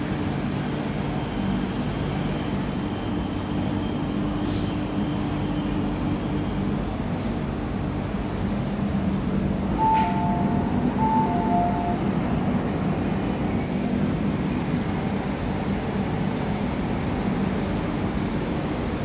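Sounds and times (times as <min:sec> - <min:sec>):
train passing rumble: 0:00.0 - 0:19.0
short high tones: 0:09.8 - 0:12.2.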